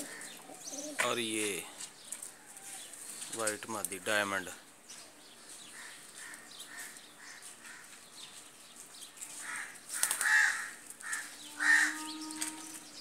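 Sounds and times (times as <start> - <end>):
birds rustling and clattering: 0.0 - 13.0
crow-like caws: 5.8 - 8.0, 9.4 - 12.1.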